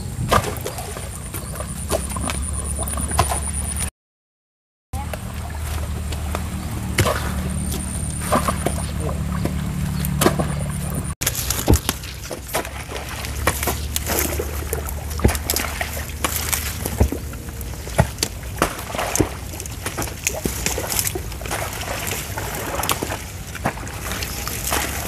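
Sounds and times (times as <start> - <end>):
sloshing in mud and water: 0.0 - 3.9, 5.0 - 25.0
plant stems snapping and rustling: 11.2 - 21.2.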